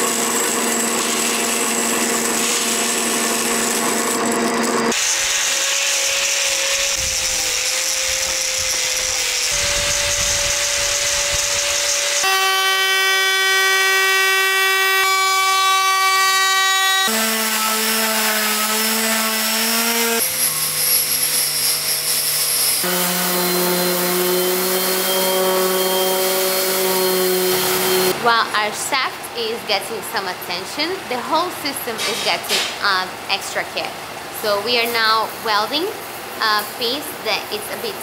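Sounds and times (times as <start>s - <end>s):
orbital sander: 0.0s - 28.2s
trim router whine: 0.0s - 28.2s
angle grinder sanding wood: 0.0s - 28.3s.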